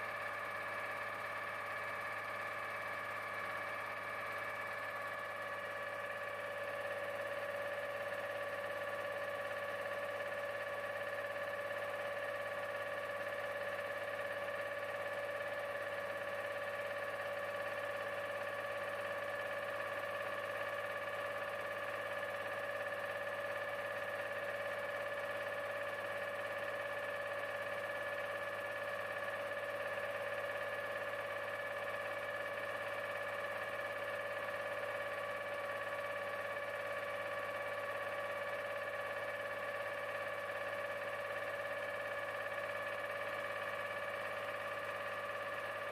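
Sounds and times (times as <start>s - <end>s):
mechanical hum: 0.0s - 7.5s.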